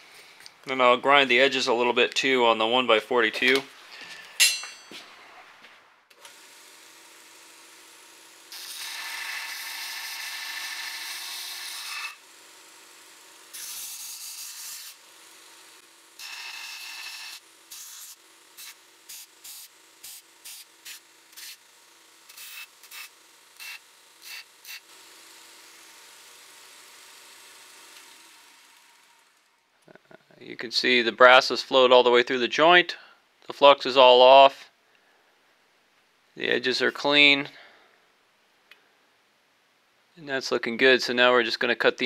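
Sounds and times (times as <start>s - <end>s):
belt grinder grinding steel: 6.2s - 29.5s.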